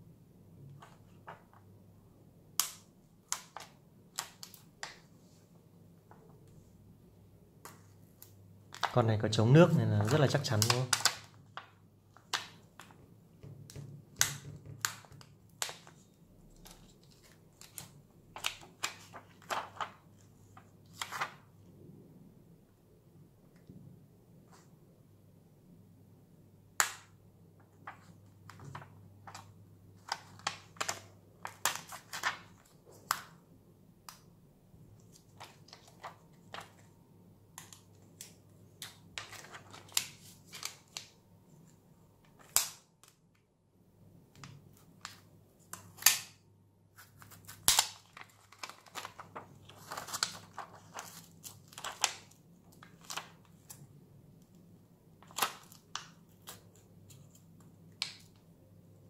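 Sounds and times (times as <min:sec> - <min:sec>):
plastic card clicking and snapping: 0:02.6 - 0:05.0, 0:13.7 - 0:16.0, 0:37.5 - 0:41.1, 0:42.3 - 0:43.2, 0:44.4 - 0:46.4.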